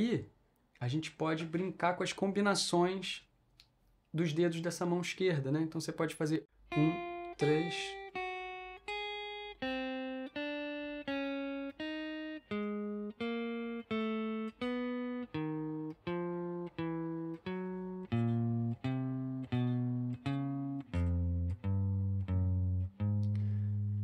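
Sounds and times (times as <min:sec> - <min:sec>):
electric guitar single notes: 0:06.7 - 0:24.0.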